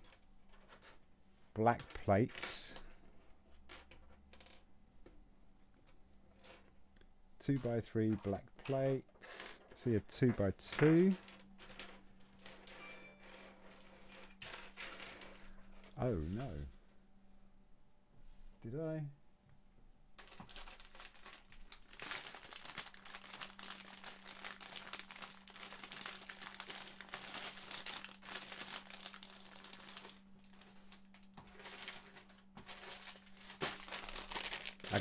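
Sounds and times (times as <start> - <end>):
plastic bricks clicking and rustling: 20.2 - 35.0.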